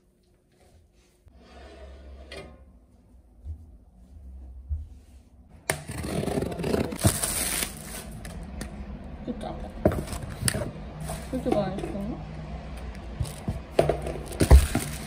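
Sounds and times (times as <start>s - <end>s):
rustling and scraping: 13.1s - 15.0s.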